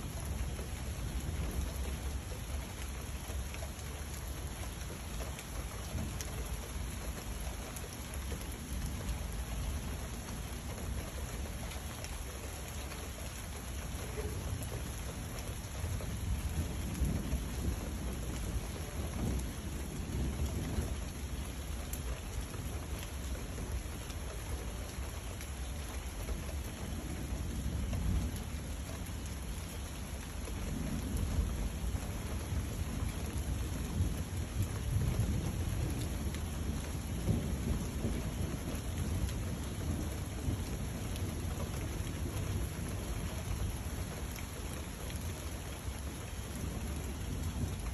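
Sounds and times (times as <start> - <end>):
steady rain falling: 0.0 - 47.9
low rolling thunder: 14.0 - 23.8, 26.3 - 45.3, 45.9 - 47.9.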